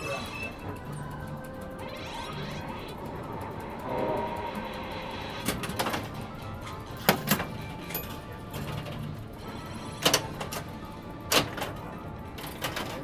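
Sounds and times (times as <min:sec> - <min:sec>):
pinball electronic music and effects: 0:00.0 - 0:13.0
pinball flippers clacking: 0:05.1 - 0:09.4, 0:10.0 - 0:13.0.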